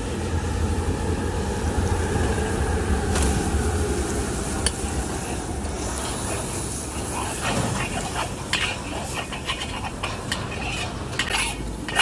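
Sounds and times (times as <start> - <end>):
low steady burner rumble: 0.0 - 12.0
liquid bubbling and sizzling in a wok: 4.4 - 12.0.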